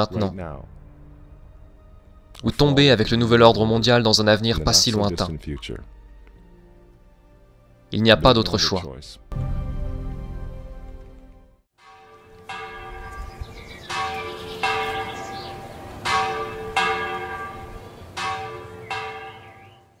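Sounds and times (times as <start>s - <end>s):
bells struck ringing: 11.8s - 20.0s.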